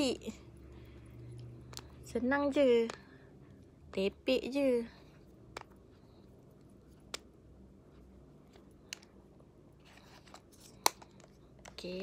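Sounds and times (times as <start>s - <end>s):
soft rustle: 4.9s - 12.0s.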